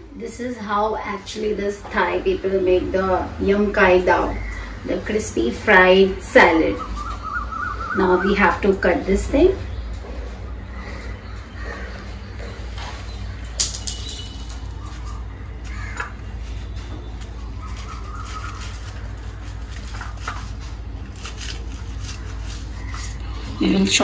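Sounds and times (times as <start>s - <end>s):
steady low hum: 0.0s - 24.0s
knife crunching through fried egg: 15.6s - 23.6s.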